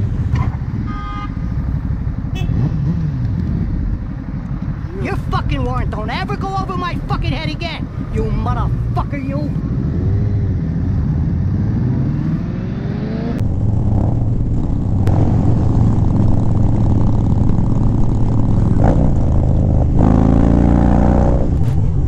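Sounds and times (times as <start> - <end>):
motorcycle engine accelerating: 0.0 - 5.8, 9.6 - 22.0
motorcycle engine drone: 0.0 - 22.0.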